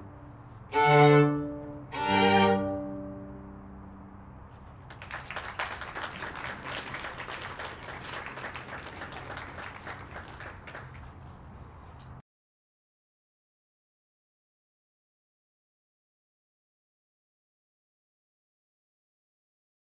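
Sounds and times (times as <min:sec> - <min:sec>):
music: 0:00.0 - 0:04.1
audience applauding: 0:04.8 - 0:11.2.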